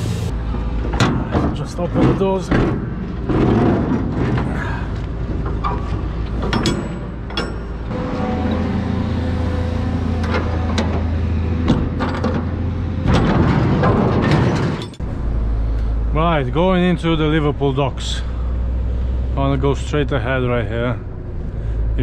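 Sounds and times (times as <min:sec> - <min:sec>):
engine running: 0:00.0 - 0:22.0
metal container door latches clanking: 0:05.4 - 0:07.9, 0:10.2 - 0:15.0.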